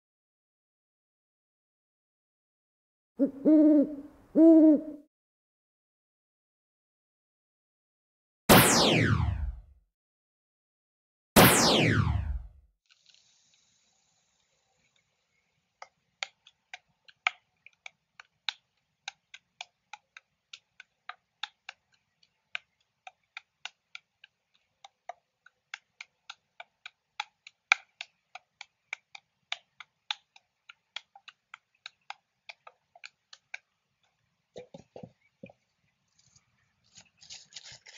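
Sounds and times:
juggling clubs clicking in hands: 15.8 - 35.6.

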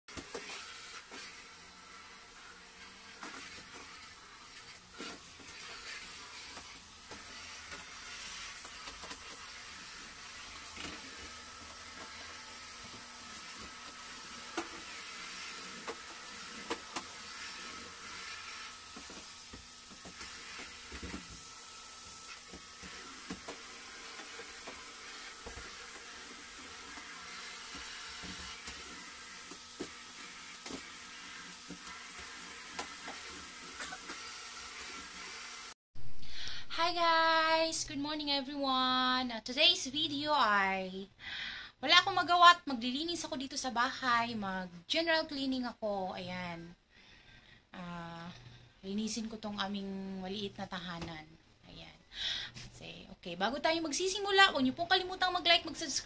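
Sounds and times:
vacuum cleaner running: 0.1 - 35.8.

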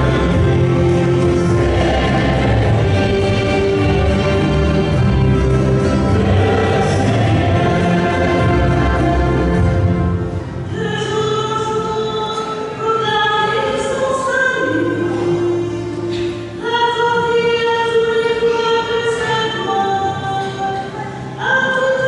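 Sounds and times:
choir singing a hymn: 0.0 - 15.6
woman singing lead: 6.0 - 22.0.

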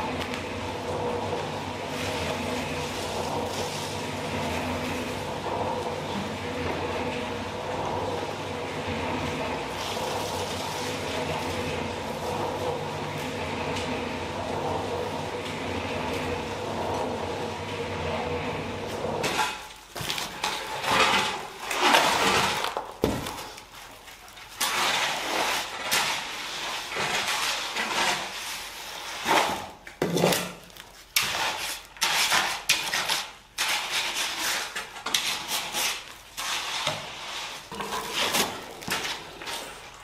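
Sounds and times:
wet concrete scraping and rattling: 0.0 - 40.0.

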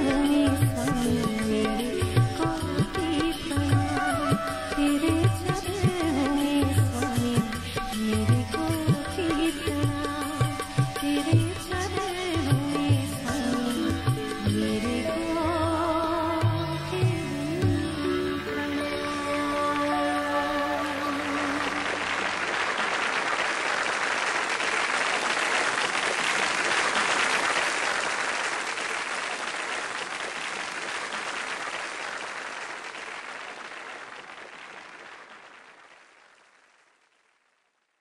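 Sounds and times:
audience applauding: 0.2 - 6.0, 19.9 - 37.4.

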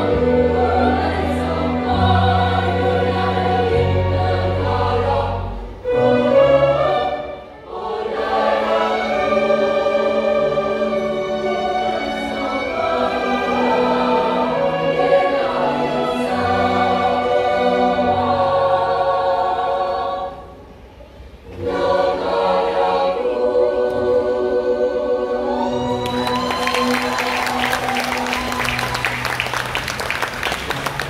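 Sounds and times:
orchestra playing: 0.0 - 18.7, 26.0 - 31.0
children's choir singing: 0.0 - 29.5.

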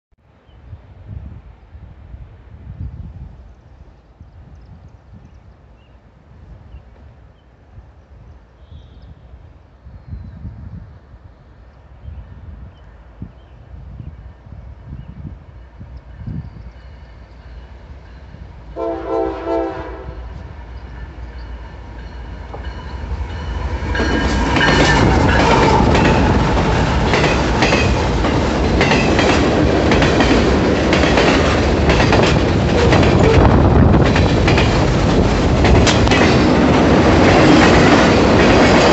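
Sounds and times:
train rumbling and rattling: 12.1 - 38.9
train horn blast: 18.7 - 20.5, 32.7 - 33.6
wheels clicking over rail joints: 22.0 - 38.9.

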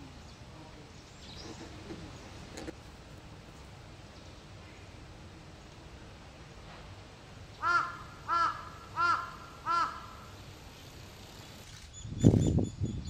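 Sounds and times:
crow cawing: 7.6 - 10.3.

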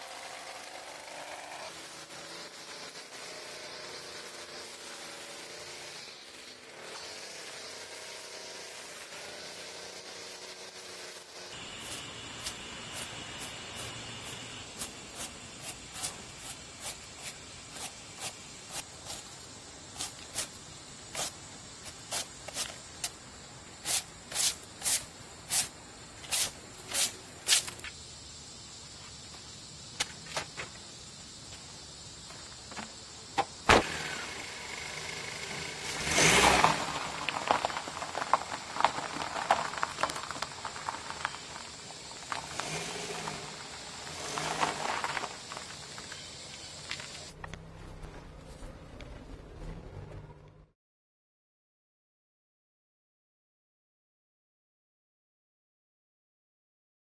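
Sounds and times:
gravel crunching under tyres: 0.6 - 28.0, 28.7 - 50.7
broom sweeping concrete: 11.4 - 23.2, 23.8 - 28.0
car engine surge: 33.6 - 50.7.

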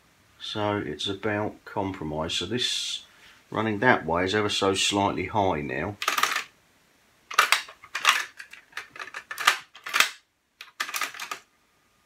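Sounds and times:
cassette clicking and clattering: 6.0 - 6.5, 7.3 - 11.4.

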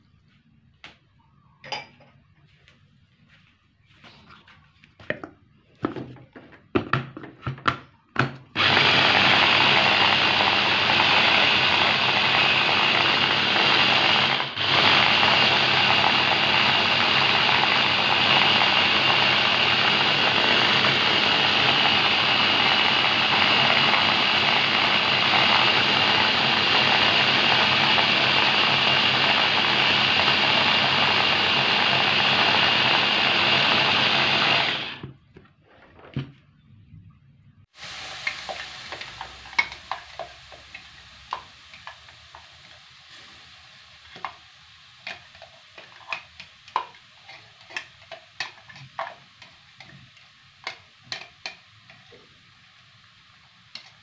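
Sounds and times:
food chopper motor whining: 8.5 - 35.2, 37.8 - 44.4.

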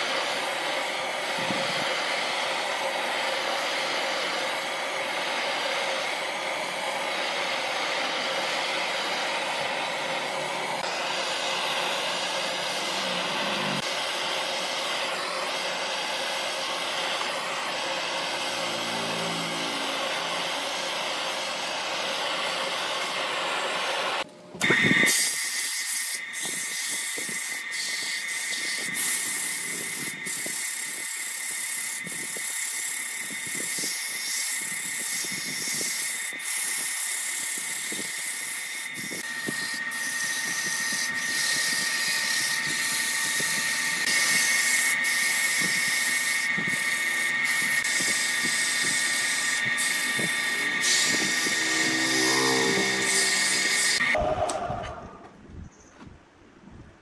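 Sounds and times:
lathe high whine: 0.0 - 55.2
sandpaper rubbing on turning wood: 25.1 - 54.2.

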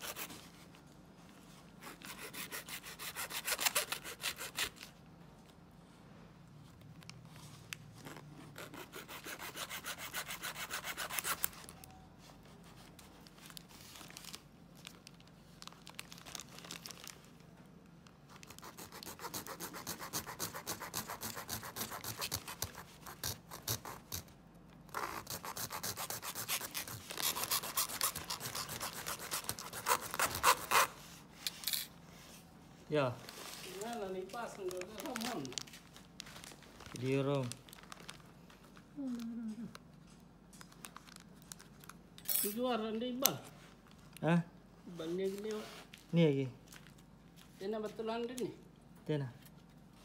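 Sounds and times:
hacksaw sawing through plastic: 2.0 - 4.6, 18.7 - 24.2.

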